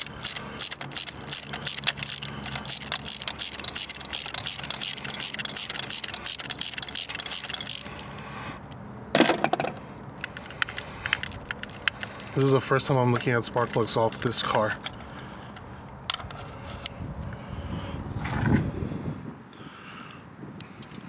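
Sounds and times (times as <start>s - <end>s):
ratchet wrench clicking: 0.0s - 8.8s, 10.1s - 12.5s.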